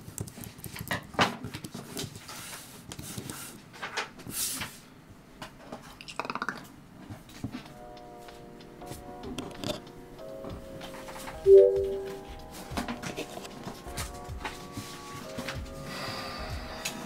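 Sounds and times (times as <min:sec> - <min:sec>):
steady musical notes: 0:11.5 - 0:12.3.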